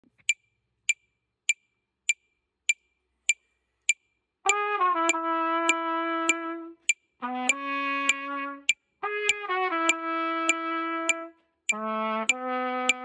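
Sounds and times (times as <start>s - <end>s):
metronome clicking: 0.2s - 13.0s
trumpet note: 4.5s - 13.0s.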